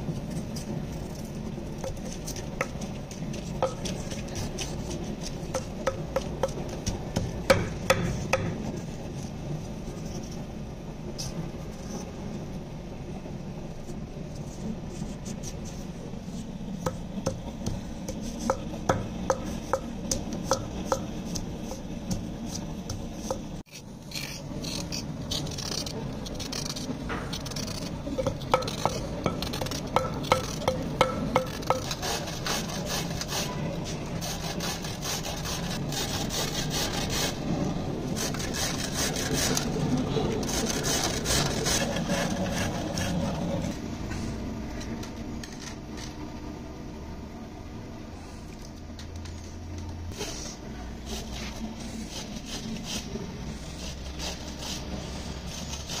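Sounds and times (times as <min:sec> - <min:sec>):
knife scraping radish skin: 0:20.8 - 0:37.4, 0:50.2 - 0:56.0.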